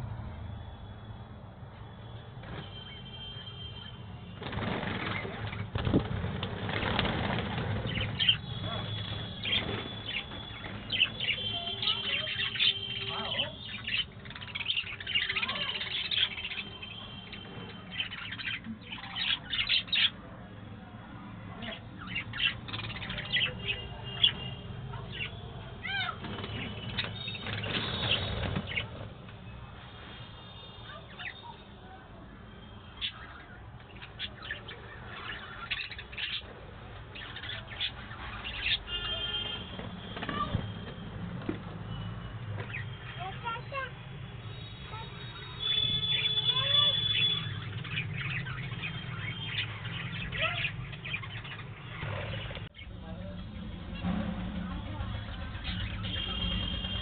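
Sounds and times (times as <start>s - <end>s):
budgerigars chirping: 4.5s - 20.2s.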